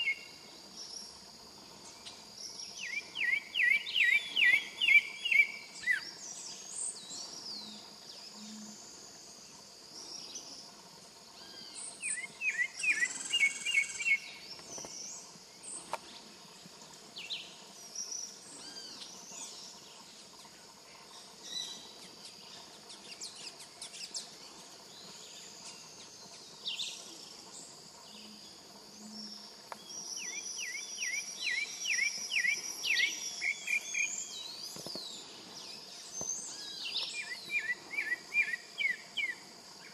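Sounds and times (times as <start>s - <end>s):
thrush singing whistled notes: 0.0s - 1.2s, 1.9s - 7.8s, 11.4s - 15.9s, 29.0s - 39.9s
high insect buzz: 0.0s - 39.9s.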